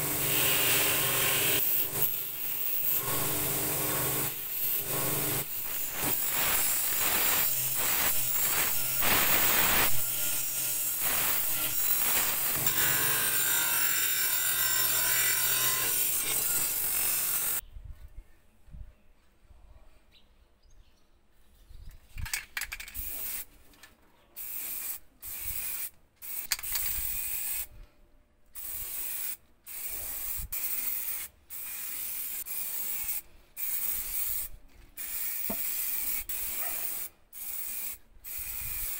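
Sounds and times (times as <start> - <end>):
wire wheel grinder rasping: 0.0 - 17.6
aerosol paint spraying: 28.6 - 38.9.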